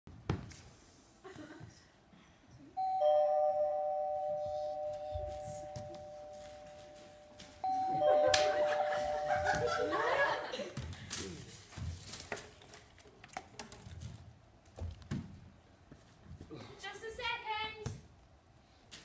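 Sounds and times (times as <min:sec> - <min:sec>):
two-tone doorbell chime: 0:02.8 - 0:10.5.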